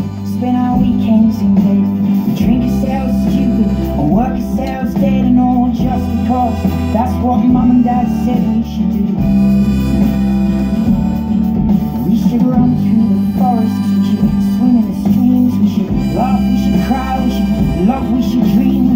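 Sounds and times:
backing music: 0.0s - 18.9s
harmonica playing: 0.0s - 18.9s.

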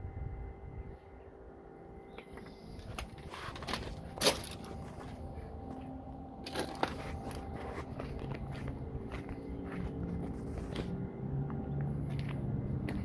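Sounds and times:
low mechanical hum: 0.0s - 13.0s
sharp knocks and crunches: 3.0s - 5.1s.

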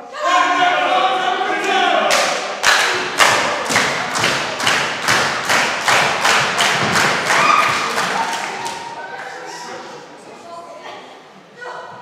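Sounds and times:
crowd clapping in unison: 2.1s - 9.4s.

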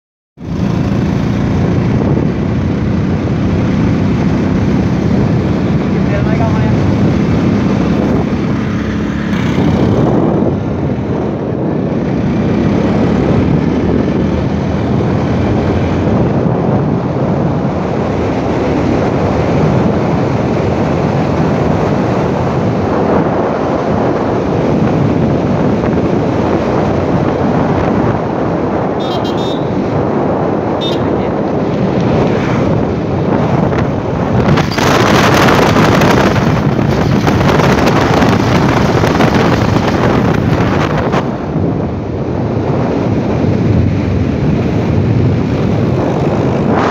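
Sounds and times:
motorcycle engine running: 0.4s - 17.5s, 30.8s - 41.6s
wind on microphone: 0.4s - 46.9s.

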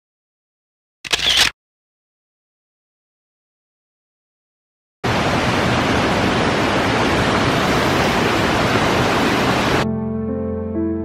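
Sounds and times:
waterfall rushing: 5.1s - 9.8s.

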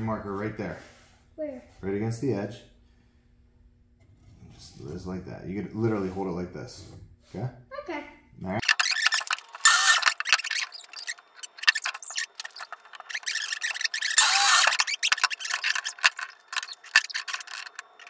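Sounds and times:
wood scraping strokes: 8.6s - 18.0s
wooden board rubbing: 8.6s - 18.0s.

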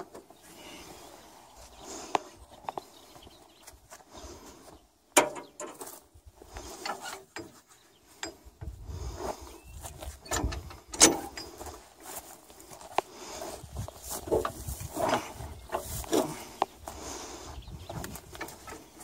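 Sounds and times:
metal clanks and knocks: 5.2s - 5.8s, 10.2s - 11.8s.

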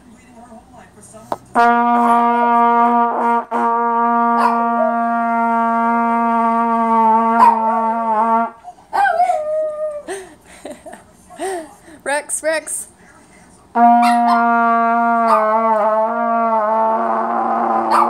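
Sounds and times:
brass instrument long note: 1.5s - 8.6s, 13.7s - 18.0s
small dog howling: 15.3s - 15.8s.

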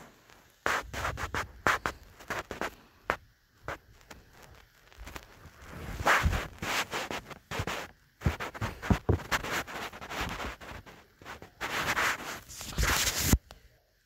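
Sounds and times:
bedding fabric rustling: 3.6s - 13.4s.

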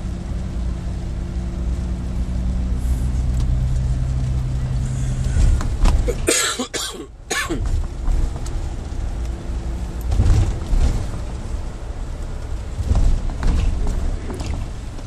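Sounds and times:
diesel coach engine running: 0.0s - 15.0s
person coughing: 6.0s - 7.7s.

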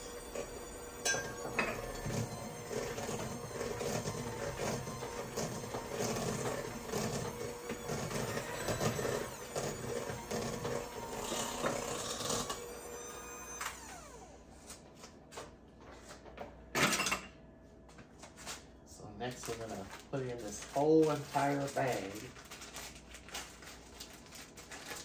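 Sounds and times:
electric hand mixer beating: 0.0s - 14.6s.

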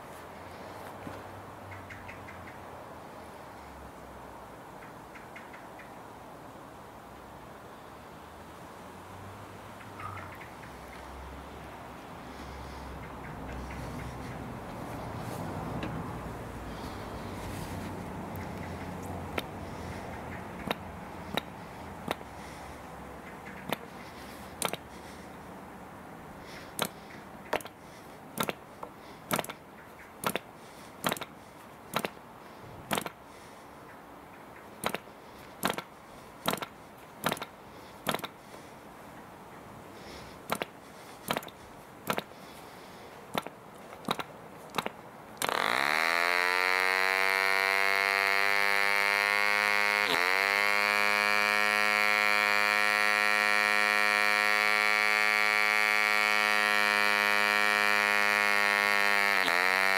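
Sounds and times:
model engine flick clicks: 29.3s - 29.6s
model engine running high buzz: 45.4s - 59.9s.

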